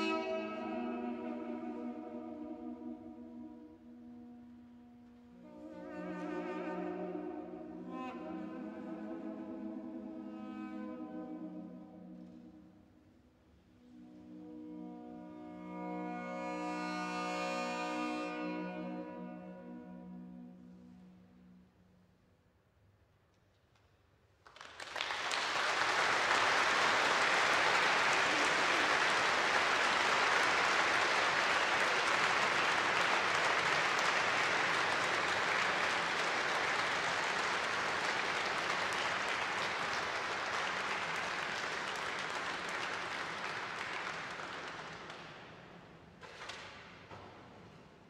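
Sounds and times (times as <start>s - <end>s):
audience applause: 24.4s - 45.5s.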